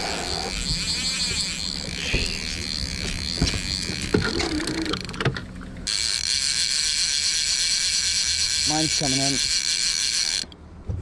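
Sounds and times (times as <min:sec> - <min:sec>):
fishing reel clicking: 0:00.0 - 0:05.2, 0:05.9 - 0:10.6
fishing reel ratcheting whir: 0:00.0 - 0:05.2, 0:05.8 - 0:10.6.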